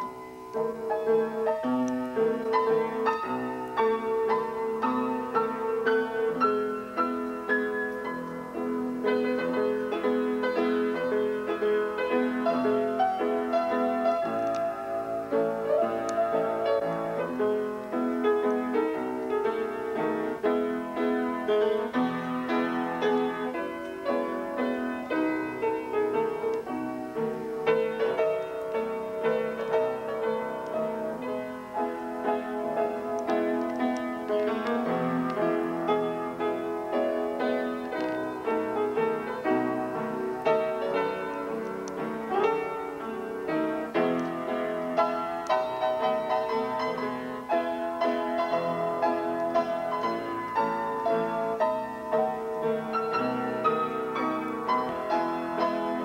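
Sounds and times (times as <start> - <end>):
piano playing a tune: 0.0 - 56.0.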